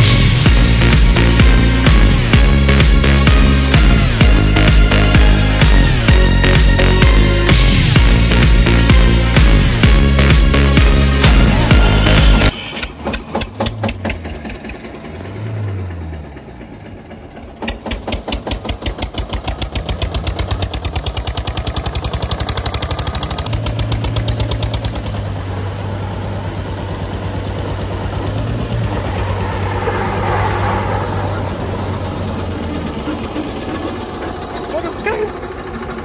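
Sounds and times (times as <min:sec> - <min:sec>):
car engine straining: 0:00.0 - 0:36.0
tractor engine revving: 0:00.0 - 0:36.0
wheels spinning on loose dirt: 0:12.5 - 0:36.0.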